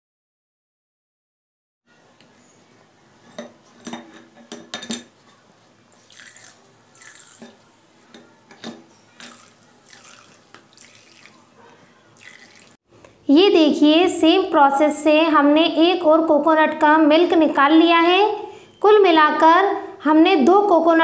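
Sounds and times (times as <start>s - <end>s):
liquid trickling into a bowl: 6.0s - 7.7s, 9.1s - 12.8s.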